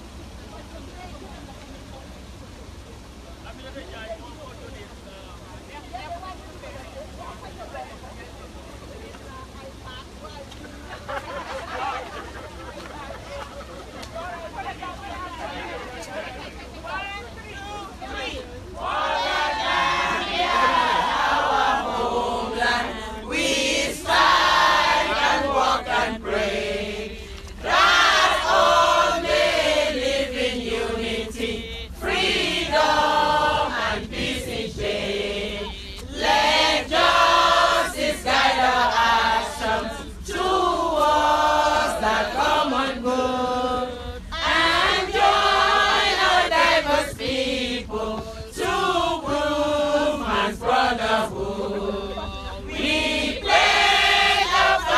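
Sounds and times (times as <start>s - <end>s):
group singing a chant: 18.0s - 54.9s.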